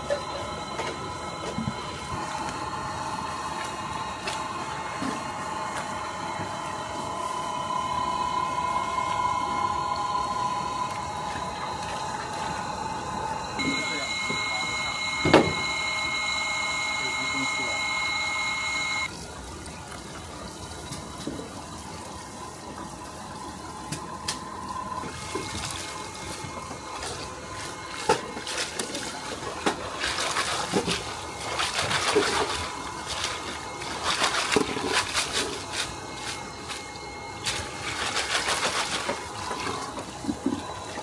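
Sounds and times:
water splashing and trickling: 0:19.1 - 0:41.0.

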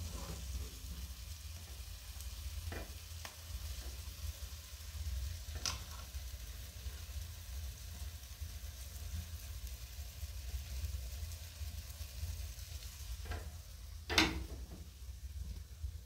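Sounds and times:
eggs sizzling in a pan: 0:00.0 - 0:16.0
utensil clanking against pan: 0:14.1 - 0:14.8.

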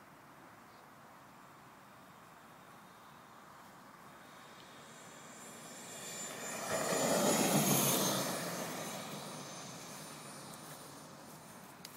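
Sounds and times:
model jet turbine whine: 0:02.4 - 0:11.9.

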